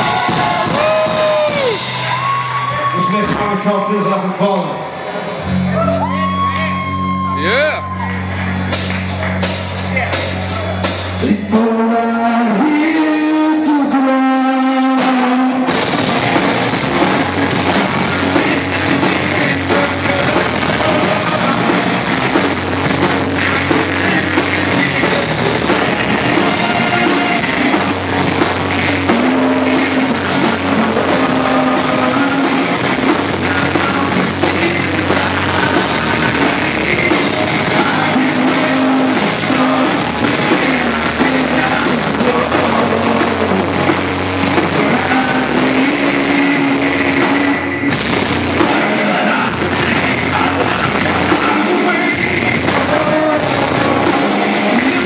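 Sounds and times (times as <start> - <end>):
drum kit: 0.0 - 3.7, 5.1 - 55.0
guitars: 0.0 - 3.9, 4.9 - 55.0
person singing: 11.2 - 15.7, 17.0 - 22.4, 23.0 - 55.0.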